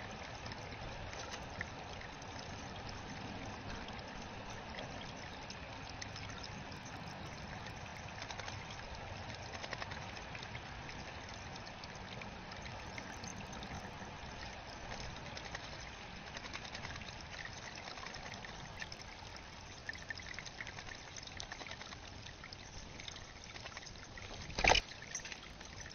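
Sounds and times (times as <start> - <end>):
water trickling: 0.0 - 25.9
bird wingbeats: 8.2 - 10.6, 14.8 - 18.8
bird splashing in water: 23.4 - 25.3.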